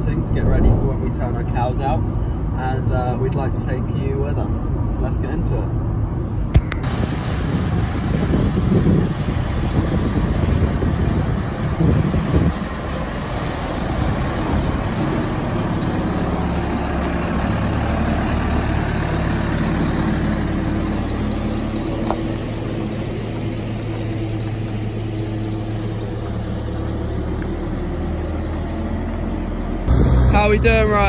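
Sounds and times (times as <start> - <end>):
diesel engine droning: 0.0 - 4.6, 5.6 - 31.0.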